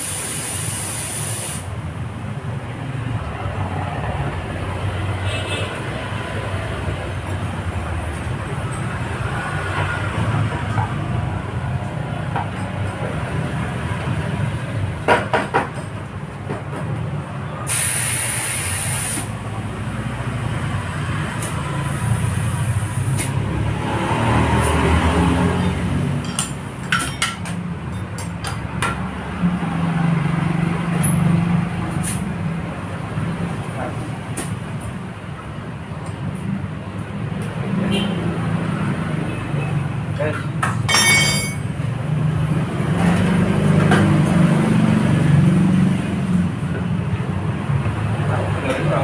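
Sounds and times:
hissing burst: 0.0 - 1.7, 17.7 - 19.3.

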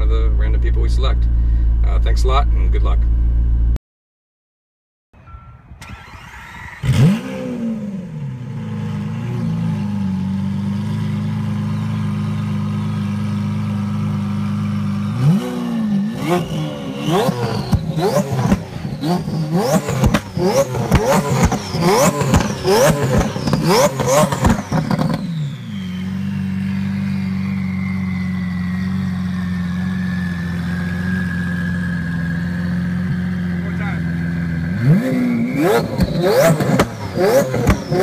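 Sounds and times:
car engine idling and revving: 0.0 - 3.8, 5.8 - 38.0.

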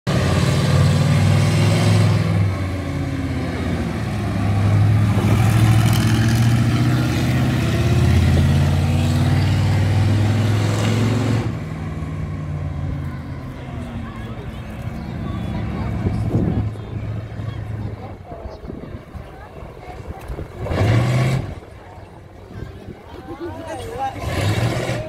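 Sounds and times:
monster truck engine revving: 0.1 - 18.0, 20.3 - 21.8, 24.1 - 25.0.

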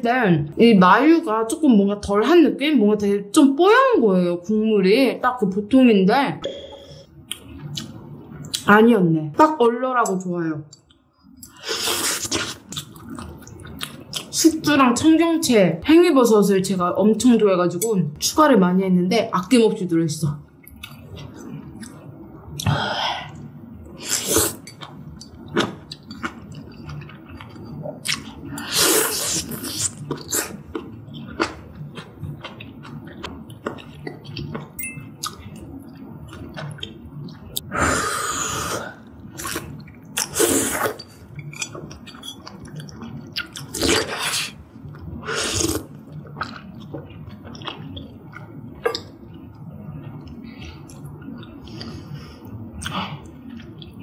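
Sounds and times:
wet chewing: 24.1 - 37.6, 39.4 - 49.4
slurping noodles: 28.6 - 30.6, 40.2 - 41.0.

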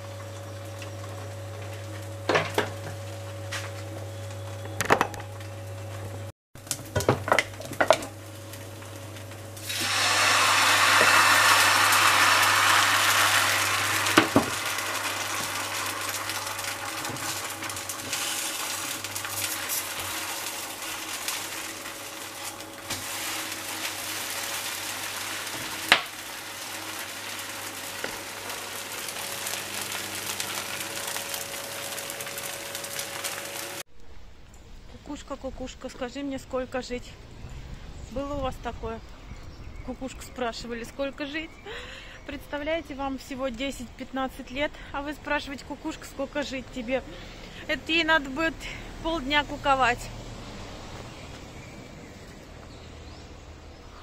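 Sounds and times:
batter sizzling in a hot pan: 8.1 - 33.8.

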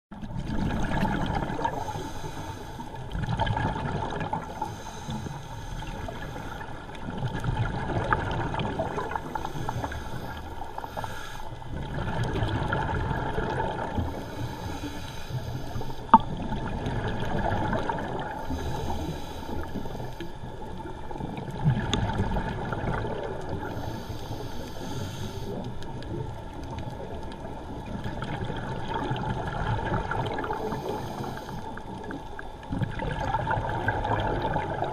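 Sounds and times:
bubbling exhales underwater: 0.1 - 2.1, 3.1 - 4.9, 7.1 - 10.4, 11.7 - 14.4, 15.8 - 19.2, 21.1 - 23.8, 27.0 - 34.9
regulator inhale hiss: 1.6 - 3.2, 4.4 - 7.0, 9.1 - 11.8, 13.9 - 16.2, 18.3 - 20.8, 23.5 - 26.2, 30.4 - 32.2.

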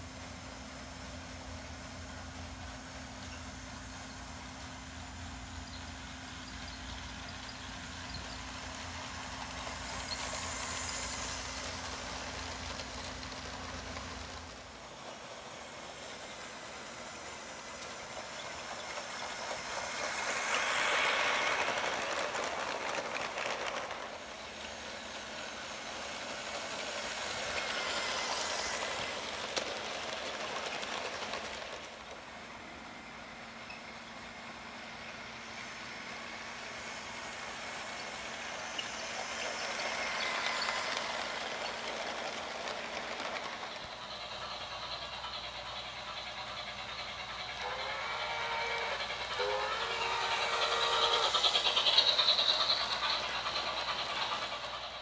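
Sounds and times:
toy train running on plastic track: 0.0 - 55.0.

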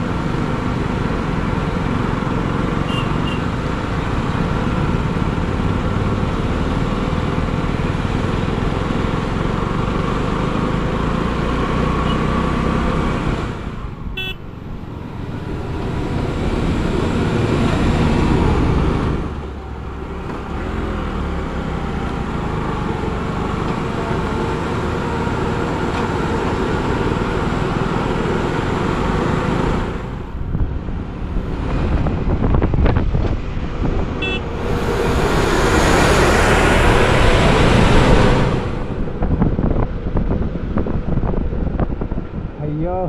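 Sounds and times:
road traffic noise: 0.0 - 43.0
short horn beep: 14.2 - 14.4, 34.2 - 34.6.

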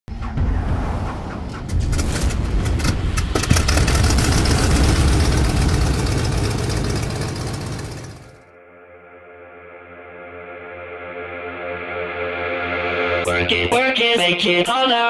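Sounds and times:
deep rumble with crackling: 0.1 - 8.4.

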